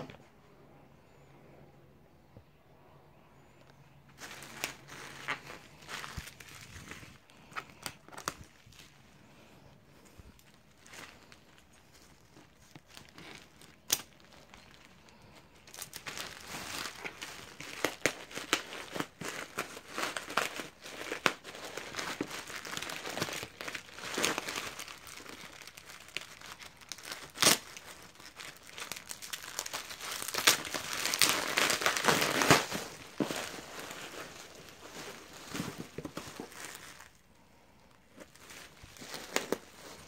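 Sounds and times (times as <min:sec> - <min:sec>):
sharp plastic crackles: 0:03.6 - 0:37.2
bubble wrap crinkling: 0:03.8 - 0:40.0.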